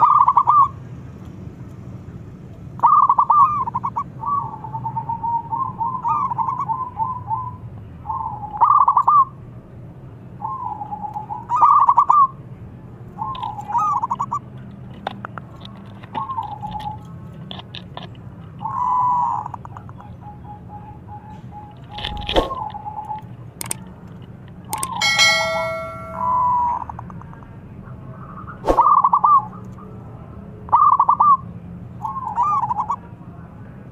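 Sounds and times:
sharp clicks: 0:23.6 - 0:23.8.

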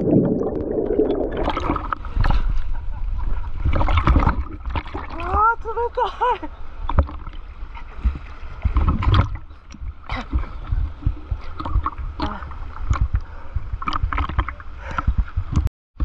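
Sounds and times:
low rumble of water on housing: 0:00.0 - 0:15.7
river water sloshing and splashing: 0:03.4 - 0:15.4.

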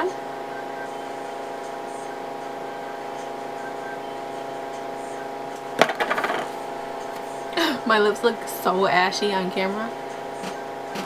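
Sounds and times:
room noise hum and hiss: 0:00.0 - 0:11.0.

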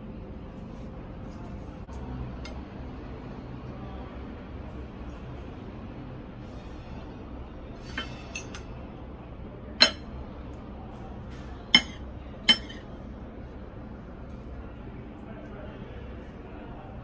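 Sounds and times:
steady low hum: 0:00.0 - 0:17.0
fork clinking on ceramic plate: 0:09.8 - 0:10.1, 0:11.8 - 0:12.8.

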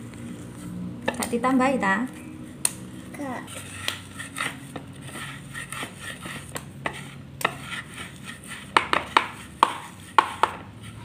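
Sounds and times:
pestle knocking in mortar: 0:08.7 - 0:10.7.

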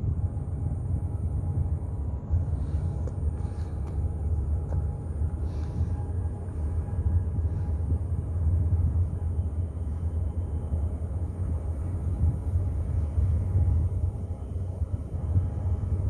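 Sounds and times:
ship passing with low rumble: 0:00.0 - 0:16.0.

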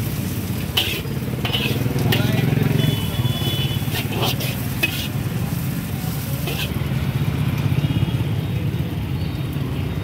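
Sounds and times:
ladle scraping and clinking in wok: 0:00.2 - 0:02.4, 0:03.9 - 0:06.8.

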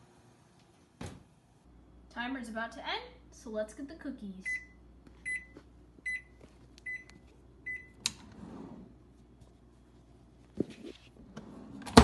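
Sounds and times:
microwave timer beeps: 0:04.4 - 0:08.1.

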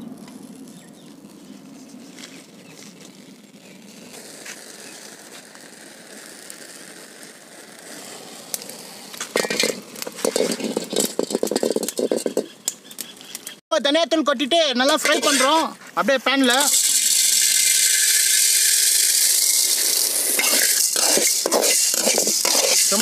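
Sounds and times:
twigs and leaves crackling in fire: 0:00.0 - 0:13.6, 0:14.8 - 0:23.0
metal pot knocking and scraping: 0:09.3 - 0:12.8, 0:20.4 - 0:23.0.

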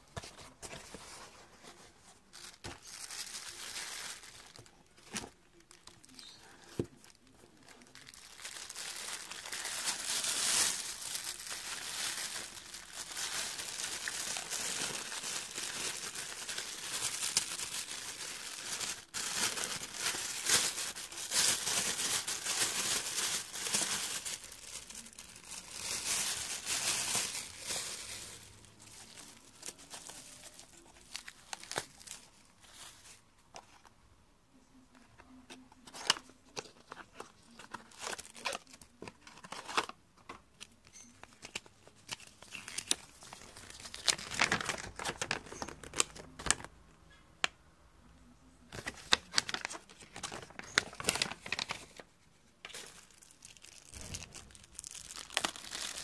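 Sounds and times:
plastic packaging crinkling: 0:02.3 - 0:33.2, 0:35.9 - 0:39.9, 0:40.8 - 0:46.7, 0:48.7 - 0:56.0.

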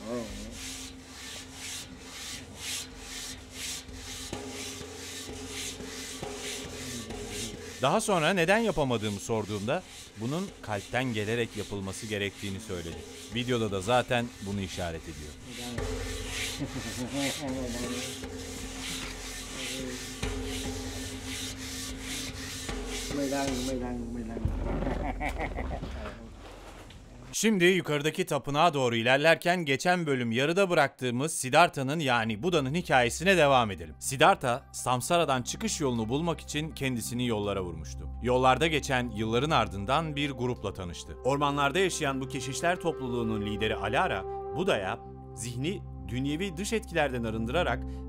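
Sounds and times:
gong rubbed by hand: 0:00.0 - 0:24.2.

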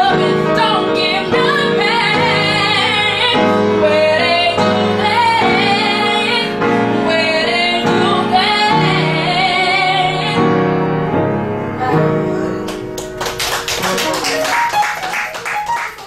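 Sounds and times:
woman singing: 0:00.0 - 0:10.6
held instrumental chords: 0:00.0 - 0:16.0.

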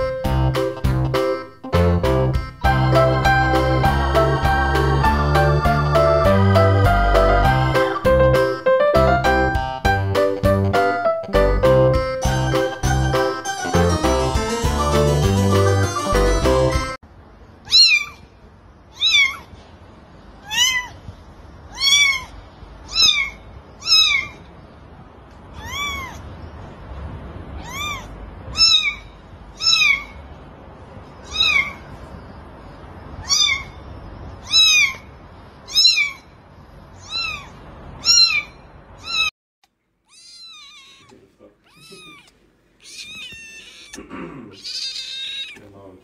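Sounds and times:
kitten mewing: 0:17.7 - 0:18.3, 0:18.9 - 0:19.6, 0:20.4 - 0:21.0, 0:21.7 - 0:24.5, 0:25.5 - 0:26.3, 0:27.6 - 0:30.2, 0:31.2 - 0:31.8, 0:34.4 - 0:35.1, 0:35.7 - 0:36.3, 0:37.0 - 0:39.3, 0:40.1 - 0:45.7.

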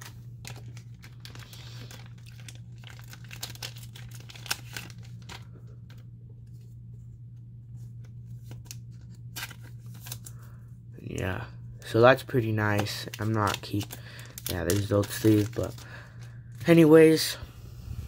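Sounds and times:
plastic crinkling: 0:00.0 - 0:06.0, 0:11.8 - 0:16.9
low hum: 0:17.3 - 0:18.0.

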